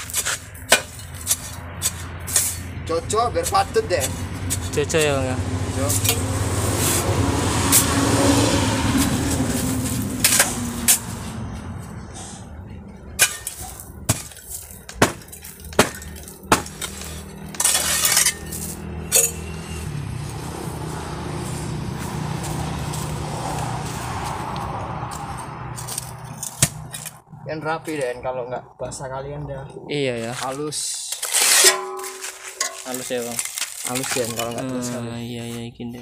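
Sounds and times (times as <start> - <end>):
metal rattle: 31.2 - 34.6.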